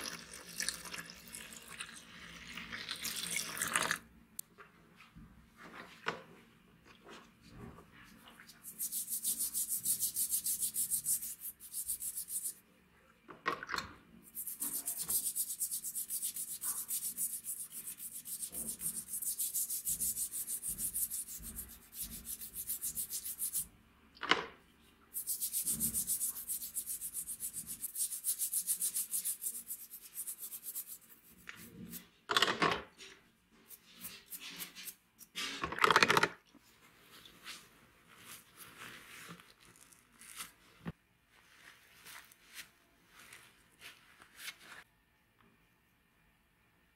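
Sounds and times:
toothbrush scrubbing razor: 8.6s - 12.6s, 14.3s - 23.7s, 25.2s - 32.1s.

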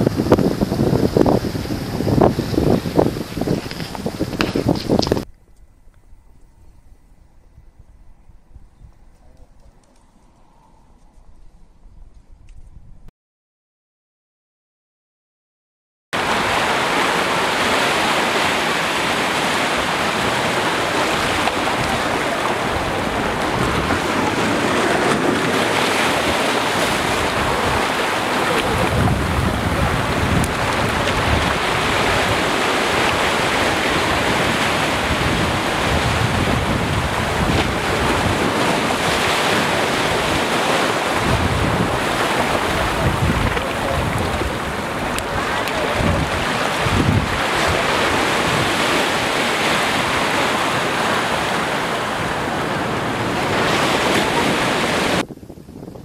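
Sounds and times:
wind rumbling on microphone: 0.0s - 13.1s, 16.2s - 56.0s
waves washing over pebbles: 16.2s - 55.2s.

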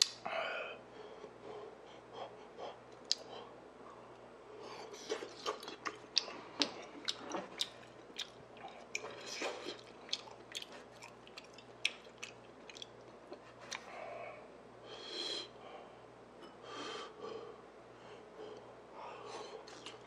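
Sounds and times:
person chewing with wet smacks: 4.9s - 13.9s, 19.6s - 20.0s.

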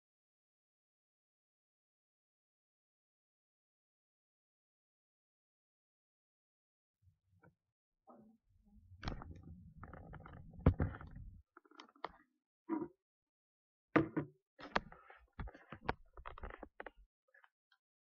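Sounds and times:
sharp knocks and thumps: 9.0s - 11.3s.

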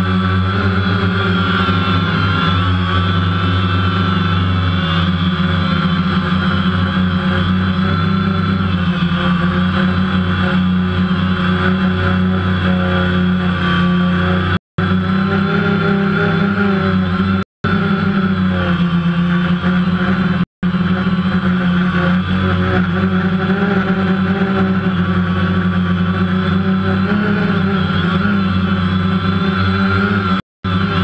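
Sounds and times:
drone propellers buzzing: 0.0s - 31.0s.

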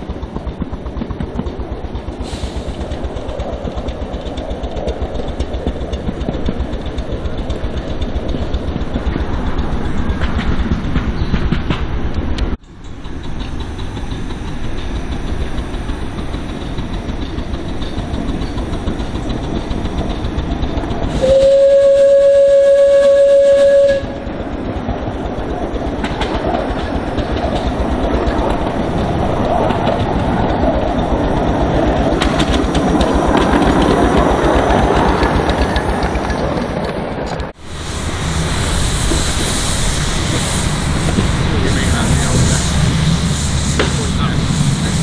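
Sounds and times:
steam locomotive running past: 0.0s - 45.0s
steam whistle blast: 21.2s - 24.2s.

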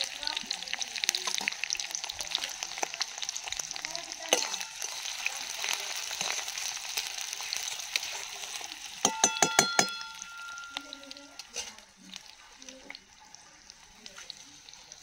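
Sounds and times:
onions sizzling in hot oil: 0.0s - 15.0s
metal spatula stirring: 4.2s - 15.0s.

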